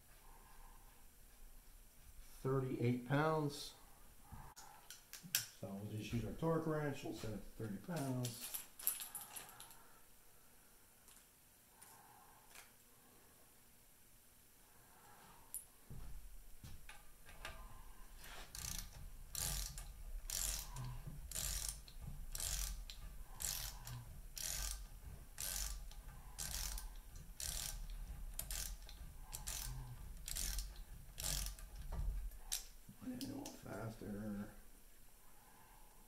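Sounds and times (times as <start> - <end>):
ratchet wrench clicking: 18.5 - 32.7.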